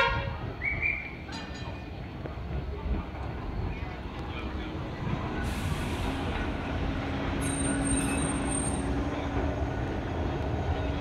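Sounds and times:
tram rumble and hum: 0.0 - 11.0
high wheel squeal: 7.4 - 9.0.

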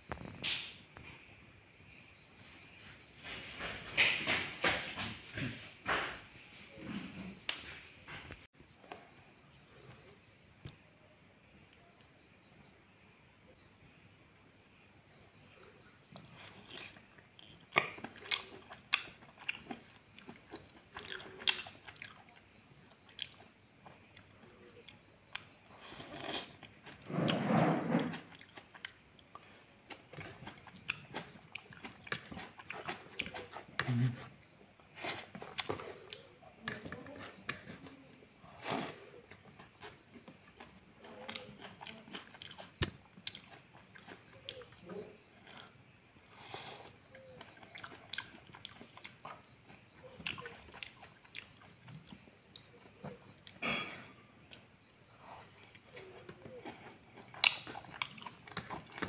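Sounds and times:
chewing and wet mouth smacks: 16.2 - 25.5, 28.3 - 34.0, 41.2 - 44.8, 46.8 - 53.6, 55.7 - 59.0.

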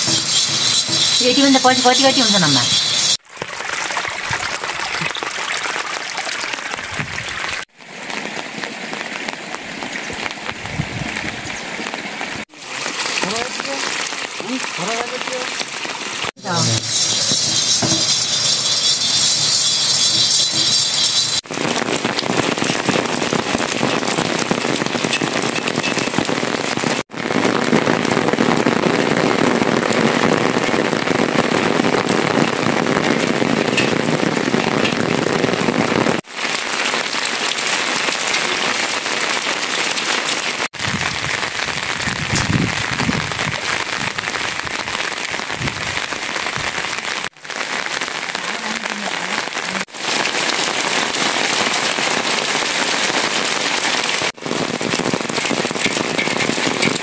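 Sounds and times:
grain roasting in iron pan: 0.0 - 3.2, 16.4 - 26.4, 54.3 - 57.0
rain pattering on roofs: 1.2 - 17.5, 21.4 - 57.0.

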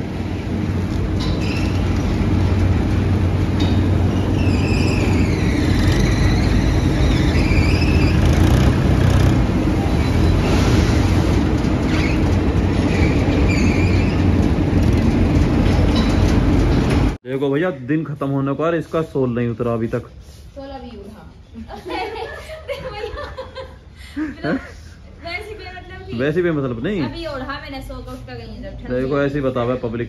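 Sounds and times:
diesel tractor engines running: 0.0 - 17.2
mill and crane machinery: 0.0 - 17.2.

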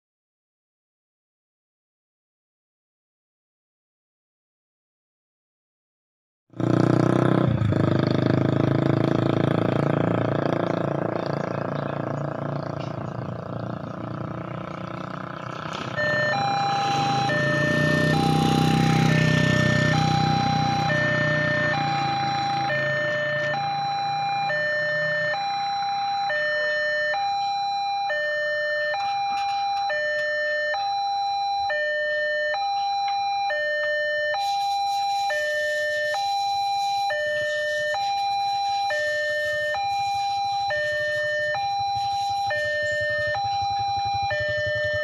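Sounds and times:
level-crossing two-tone alarm: 15.8 - 45.0.

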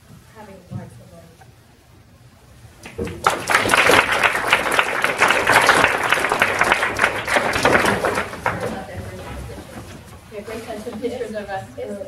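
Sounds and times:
audience applauding: 2.8 - 9.5.

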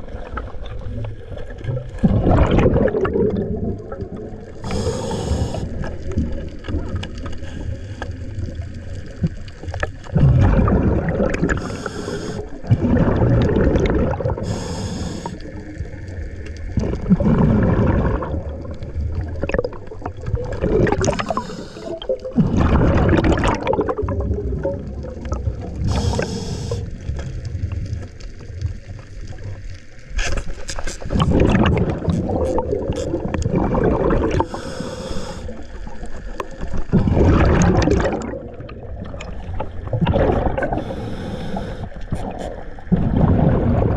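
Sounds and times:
gurgle of exhaled bubbles: 0.0 - 43.9
regulator inhale hiss: 4.6 - 6.0, 11.6 - 12.7, 14.4 - 15.6, 21.1 - 22.1, 25.8 - 27.0, 34.4 - 35.7, 40.7 - 42.6.

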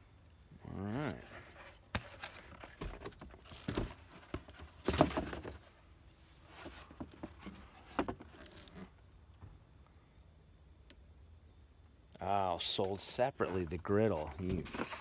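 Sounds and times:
cardboard box rustling and scraping: 1.0 - 5.8, 6.4 - 9.0, 14.1 - 15.0.

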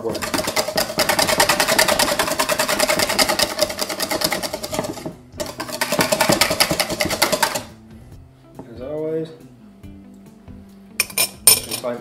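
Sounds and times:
wire whisk beating in steel bowl: 0.0 - 7.8.

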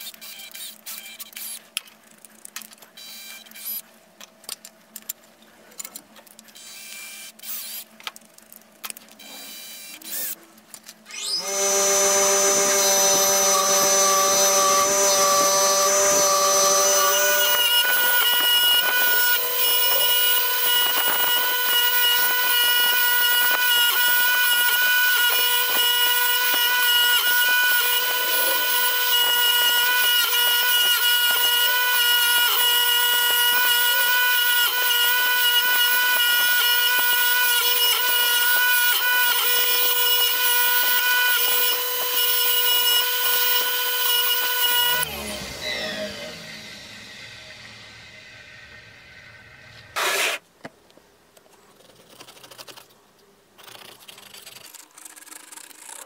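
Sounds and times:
bench grinder motor whine: 11.1 - 50.4.

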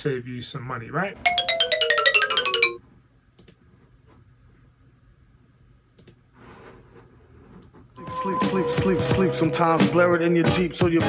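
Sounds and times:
descending electronic jingle: 1.3 - 2.8.

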